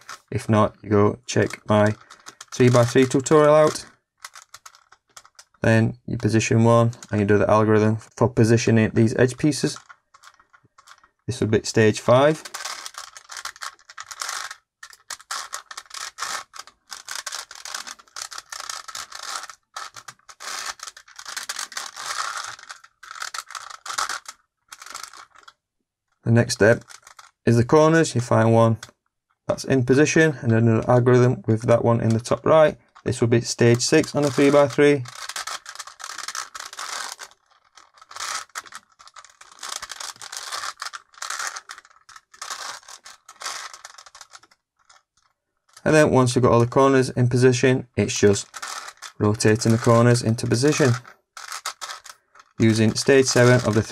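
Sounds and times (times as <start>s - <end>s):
plastic puzzle cube clicking: 1.3s - 5.6s, 6.9s - 7.2s, 9.4s - 11.2s, 12.0s - 25.6s, 26.7s - 27.4s, 32.1s - 45.9s, 48.1s - 53.9s.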